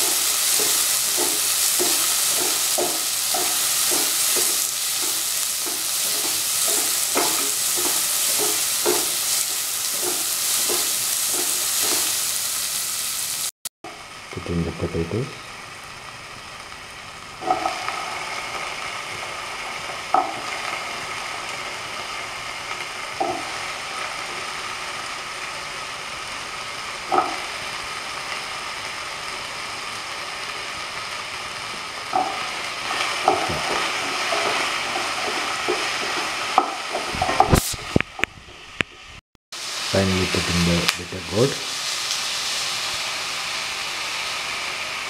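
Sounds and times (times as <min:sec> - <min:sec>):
potatoes sizzling in oil: 0:00.0 - 0:45.0
spatula knocking against pan: 0:01.2 - 0:09.1.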